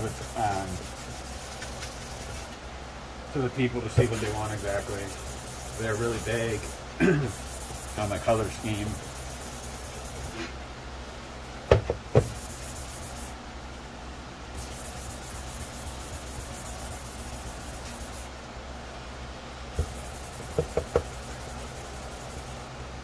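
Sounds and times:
sanding sponge rubbing plastic: 0.0 - 2.5, 4.0 - 10.4, 12.2 - 13.3, 14.6 - 18.3, 19.8 - 22.6
sharp knocks: 19.8 - 21.1.

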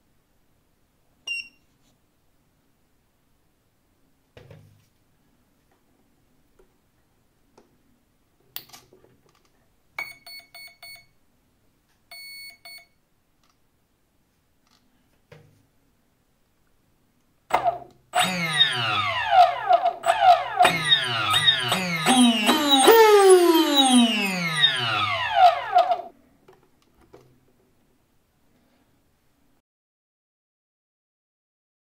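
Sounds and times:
motor controller beeps: 18.2 - 19.4, 20.0 - 26.1.

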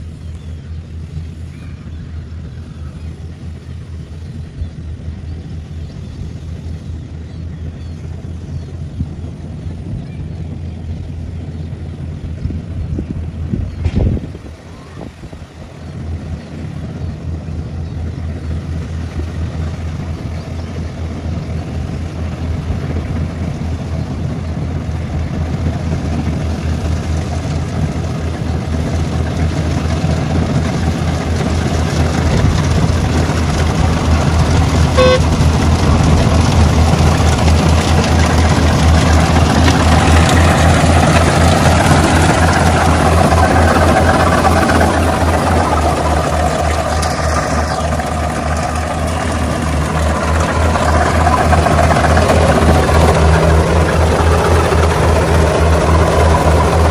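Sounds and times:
combine harvester engine running: 0.0 - 56.9
short tone: 34.9 - 35.5.

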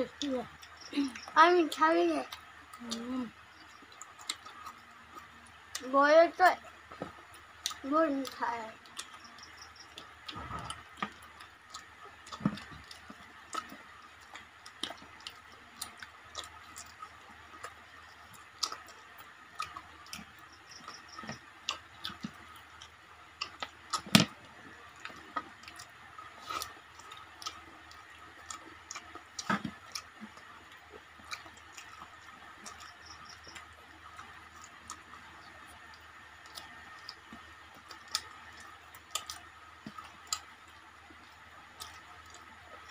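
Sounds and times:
chewing: 0.0 - 42.9.

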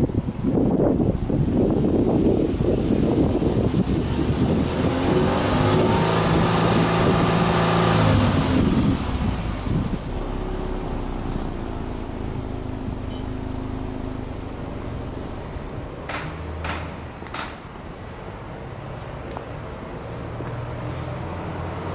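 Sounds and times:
car engine revving and idling: 0.0 - 17.1.

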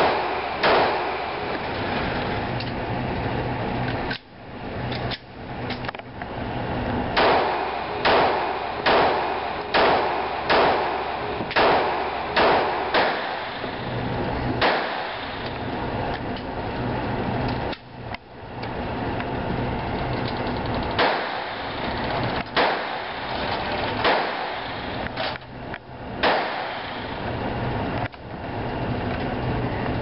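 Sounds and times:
pistol shots echoing indoors: 0.0 - 1.3, 7.2 - 13.6, 14.6 - 15.4, 21.0 - 21.7, 22.6 - 23.2, 24.0 - 24.8, 26.2 - 27.0.

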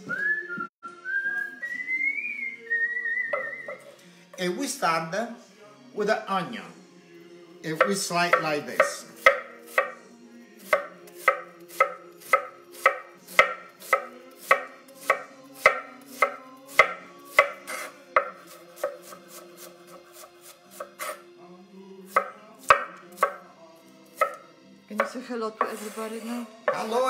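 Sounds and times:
knife slicing on wooden board: 10.7 - 21.2.

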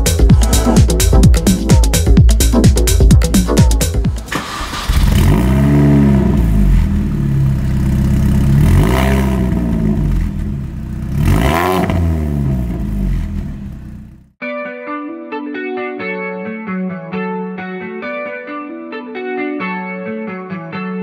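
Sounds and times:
car engine revving: 4.1 - 14.3.

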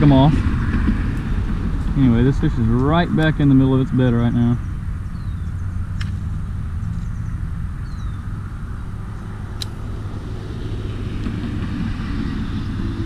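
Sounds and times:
road traffic rumble: 0.0 - 13.0
sharp click: 6.0 - 6.2.

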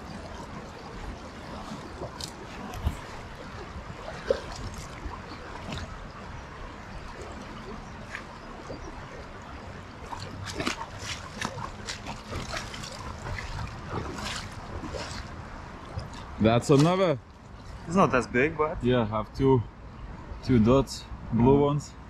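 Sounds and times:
river water running: 0.0 - 22.0
short splashy noises: 10.0 - 15.4.

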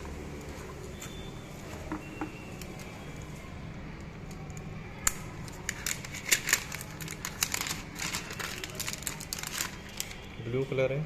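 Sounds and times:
plastic wrap crinkling: 5.0 - 10.4.

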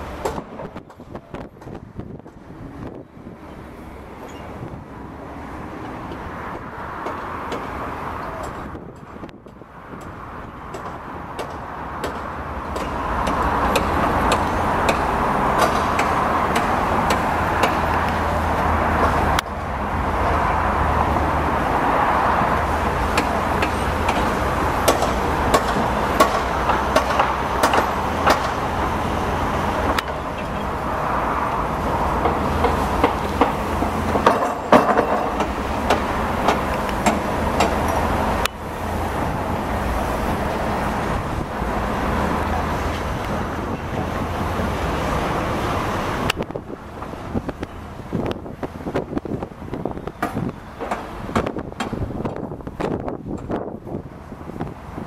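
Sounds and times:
diesel engine rumble: 0.0 - 55.0
machinery clicks and knocks: 8.4 - 18.2, 23.1 - 30.8, 32.0 - 38.6, 48.6 - 53.6.

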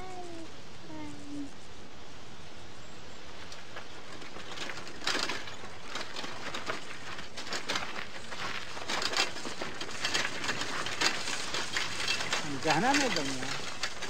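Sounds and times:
steady hiss: 0.0 - 4.8
footsteps crunching through dry grass: 5.6 - 14.0.

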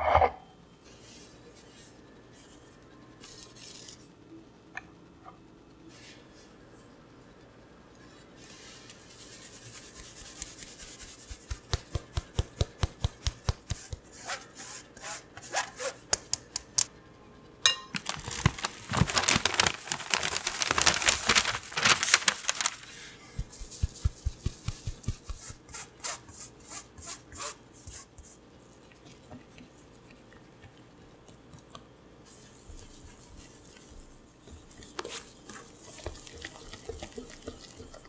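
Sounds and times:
flour rasping through mesh sieve: 18.6 - 28.4.

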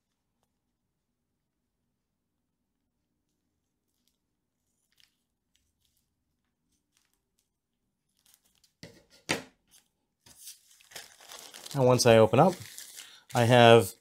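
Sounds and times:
thin plastic crinkling: 3.6 - 14.0
sharp plastic crackle: 10.6 - 13.9.

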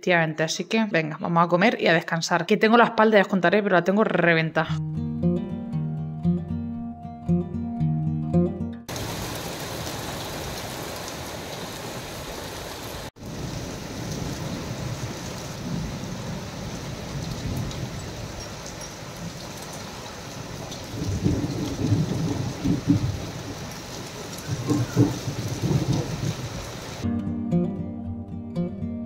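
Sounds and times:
rain falling on tiles: 8.9 - 27.0
thunder rumbling: 13.2 - 27.0.

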